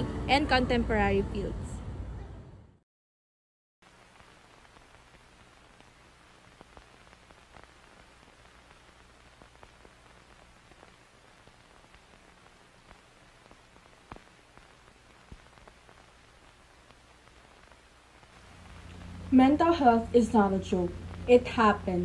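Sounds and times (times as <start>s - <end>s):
crackling clicks: 3.8s - 21.8s
faint static hiss: 3.8s - 22.0s
low hum: 17.2s - 22.0s.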